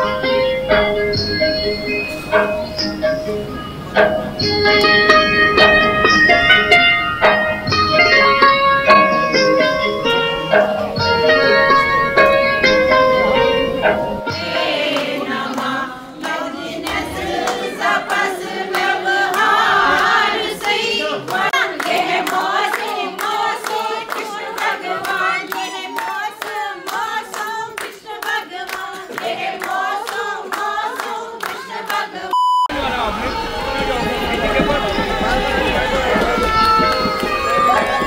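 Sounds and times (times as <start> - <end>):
hand-clapping: 4.7 - 5.3, 14.4 - 32.0, 33.0 - 38.0
group singing: 12.7 - 38.0
loud steady beep: 32.3 - 32.8.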